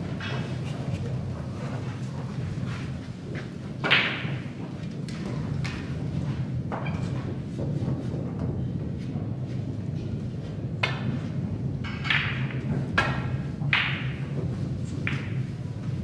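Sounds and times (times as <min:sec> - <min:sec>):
steady low hum: 0:00.0 - 0:16.0
balls clacking together: 0:00.1 - 0:09.2, 0:10.0 - 0:16.0
cue striking ball: 0:03.8 - 0:04.4, 0:11.9 - 0:14.2, 0:15.0 - 0:15.4.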